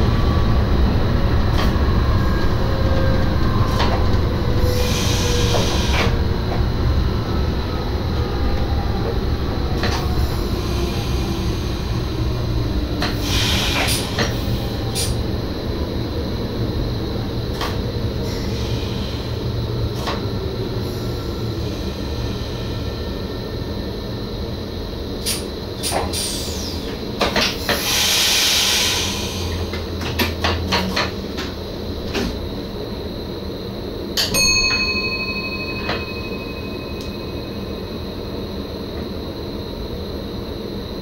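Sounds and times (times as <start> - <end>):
train cab low rumble: 0.0 - 41.0
faint high tone: 34.4 - 38.1.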